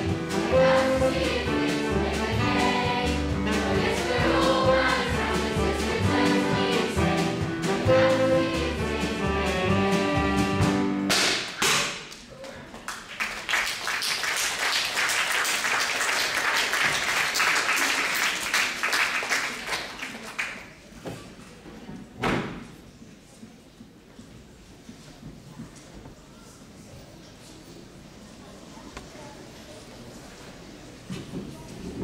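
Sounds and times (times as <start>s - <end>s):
audience applauding: 12.8s - 20.7s.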